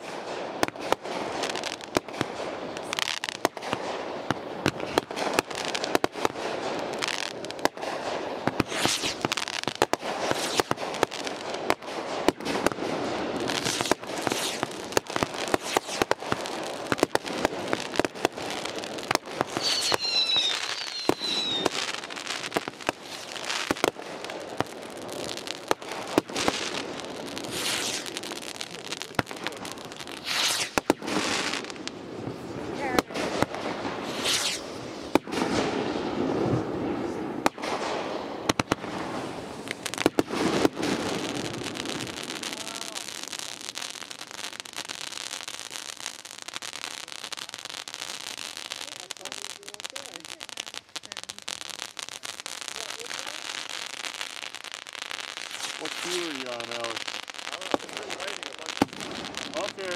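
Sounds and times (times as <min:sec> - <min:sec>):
firework shells bursting: 0:00.0 - 0:36.6, 0:37.4 - 0:45.4
firework crackling: 0:00.0 - 0:59.9
high gliding firework whistle: 0:07.9 - 0:10.8, 0:13.4 - 0:14.8, 0:15.4 - 0:16.3, 0:19.3 - 0:23.7, 0:26.5 - 0:29.1, 0:29.7 - 0:31.9, 0:34.0 - 0:36.7.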